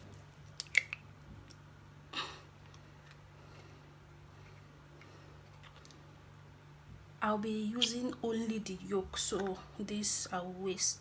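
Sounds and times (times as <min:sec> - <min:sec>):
egg shell cracking: 0:00.4 - 0:01.6.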